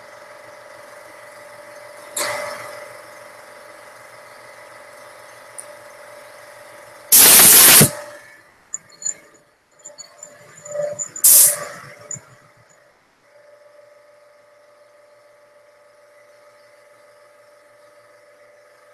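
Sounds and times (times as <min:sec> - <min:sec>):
steady mechanical hum: 0:00.0 - 0:18.9
burst of hissing: 0:07.1 - 0:08.1, 0:11.2 - 0:12.0.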